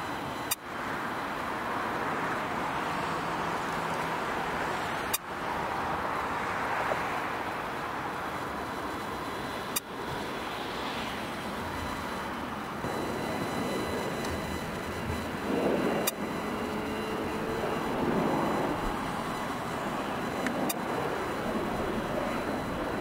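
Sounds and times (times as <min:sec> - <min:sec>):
jet engine taxiing: 0:00.0 - 0:23.0.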